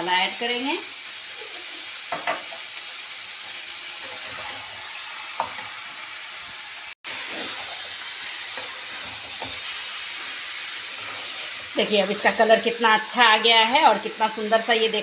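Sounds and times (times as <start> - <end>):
food sizzling in a metal pan: 0.0 - 15.0
metal spatula scraping: 3.9 - 6.1, 7.1 - 13.6.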